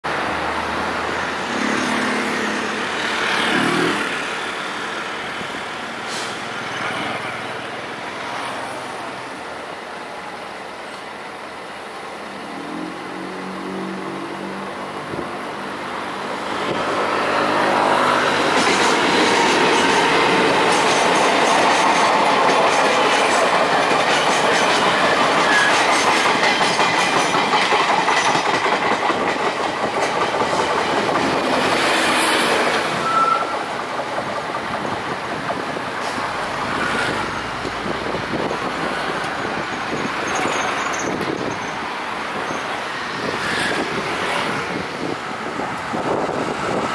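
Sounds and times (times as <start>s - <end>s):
train coaches rattling over track: 0.0s - 46.9s
high wheel squeal: 25.4s - 26.0s, 32.0s - 33.8s, 39.7s - 43.8s.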